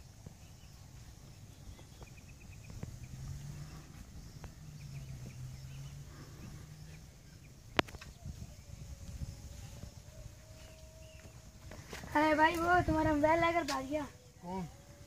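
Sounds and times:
faint chirps: 0.0 - 11.9.

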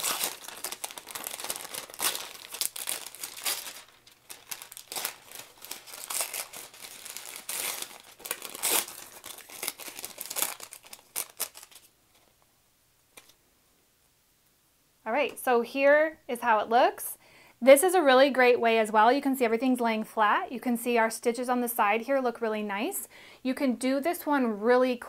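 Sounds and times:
paper tearing and crinkling: 0.0 - 11.9.

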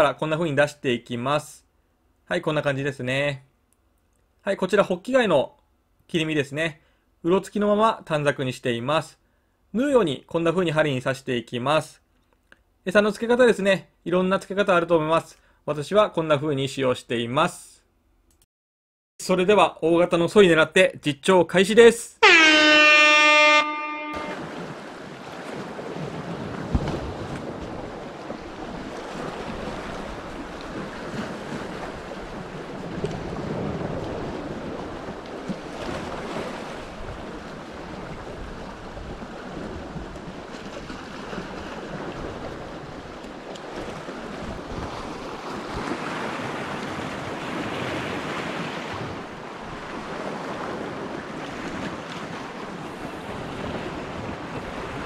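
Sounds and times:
loud horn-like sound effect: 22.2 - 24.6
sea surf on rocky shore: 22.2 - 55.0
wind on microphone: 43.8 - 50.1, 52.8 - 55.0.

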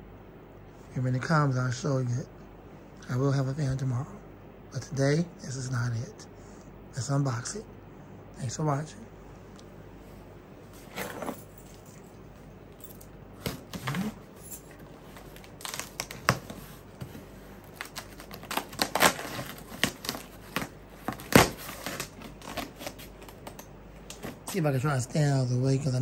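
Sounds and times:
keys clinking: 11.0 - 14.9
packing tape being torn: 13.4 - 14.2, 15.2 - 16.8, 17.6 - 24.4
cardboard crinkling and clicks: 15.2 - 24.4.

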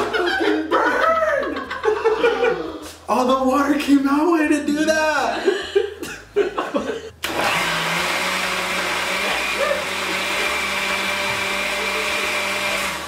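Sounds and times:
blender running: 7.2 - 13.0.

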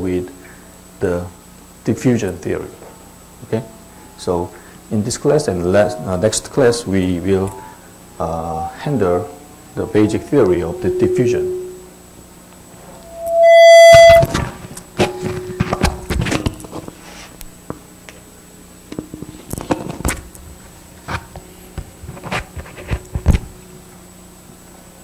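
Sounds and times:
loud high-pitched tone: 3.4 - 16.0.

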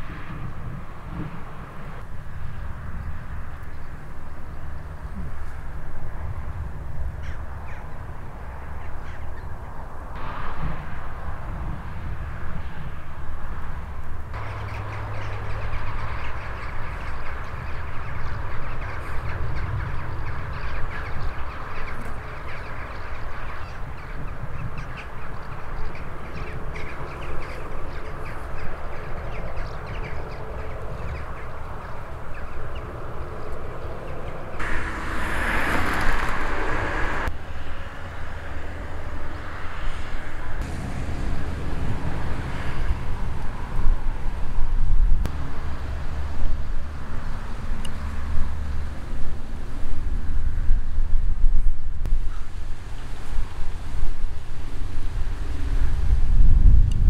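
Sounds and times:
wind rumbling on microphone: 0.0 - 57.0
birds calling: 2.9 - 10.0, 14.3 - 44.3
rushing sound: 34.4 - 39.2, 40.4 - 47.5.

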